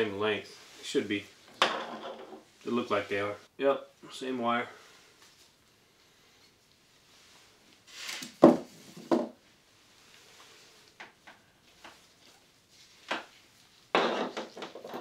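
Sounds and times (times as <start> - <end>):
rustle: 7.0 - 13.8
hard pieces knocking on tabletop: 8.4 - 9.3.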